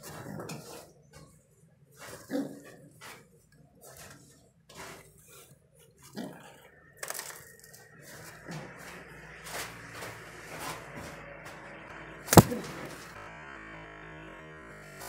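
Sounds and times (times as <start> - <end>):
pigeon wing smack: 12.3 - 13.0.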